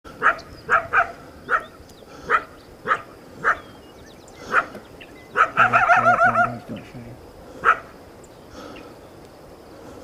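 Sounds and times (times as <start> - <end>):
dog barking: 0.2 - 1.7, 2.3 - 3.6, 4.5 - 6.6, 7.6 - 7.9.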